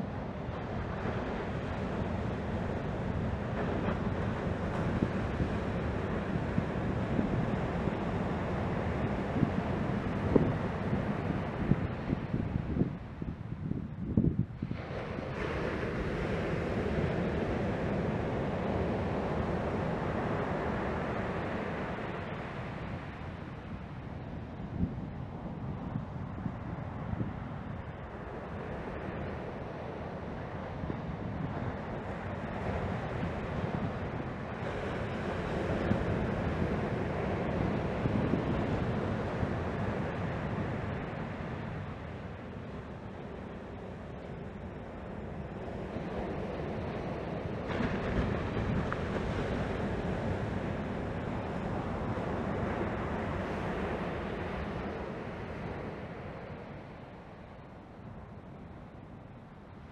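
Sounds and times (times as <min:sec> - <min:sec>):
small waves washing up beach: 0:00.0 - 0:13.4, 0:14.4 - 0:59.9
wind rumble on microphone: 0:00.0 - 0:59.9
surf breaking on beach: 0:30.5 - 0:57.5.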